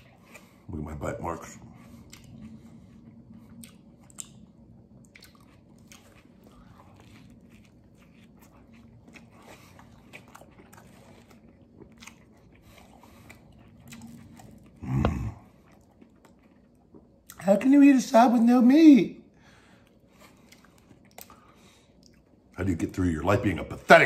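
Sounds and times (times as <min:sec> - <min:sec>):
moist chewing: 0:01.6 - 0:17.4
crunching bites of sandwich: 0:03.5 - 0:17.2.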